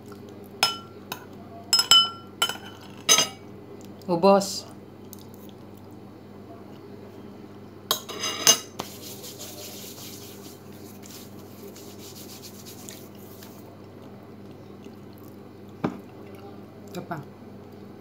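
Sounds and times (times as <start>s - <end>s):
metal spoon clinking on plate: 0.6s - 3.4s
hands rubbing together: 8.7s - 13.7s.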